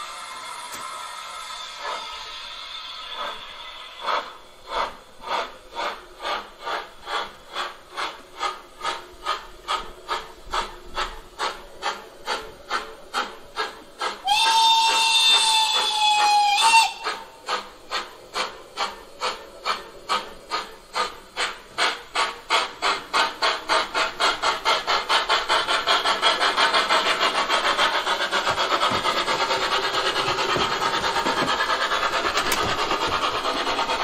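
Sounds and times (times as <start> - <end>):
steam locomotive chuffing: 0.0 - 34.0.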